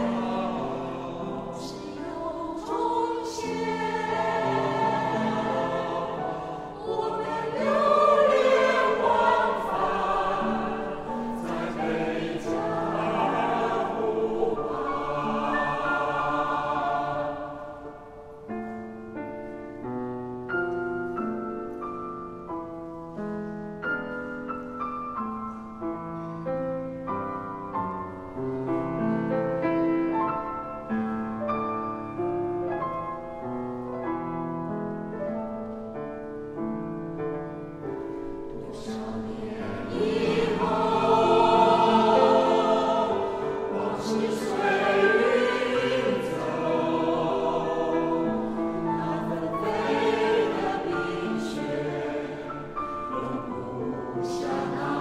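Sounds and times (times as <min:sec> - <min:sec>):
mixed choir singing: 0:00.0 - 0:18.4, 0:38.2 - 0:55.0
grand piano playing: 0:00.0 - 0:55.0.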